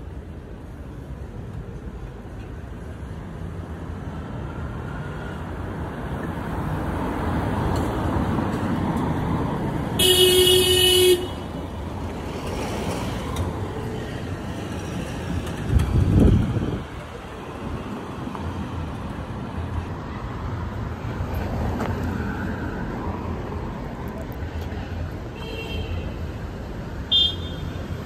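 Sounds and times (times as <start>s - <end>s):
cars passing: 0.0s - 28.0s
vehicle horn: 10.0s - 11.5s, 27.1s - 27.7s.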